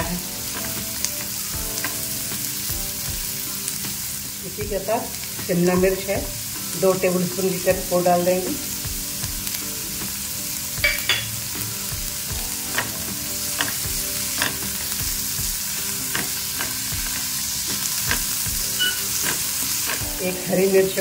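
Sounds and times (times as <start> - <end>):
vegetables sizzling in a pan: 0.0 - 21.0
spatula scraping a pan: 12.6 - 20.2.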